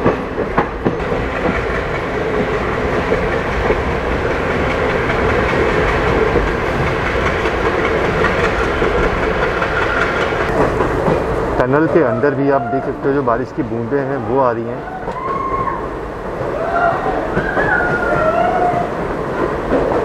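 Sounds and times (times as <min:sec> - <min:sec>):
wheels clattering over rail joints: 0:00.0 - 0:12.2
train running gear rumble: 0:00.0 - 0:20.0.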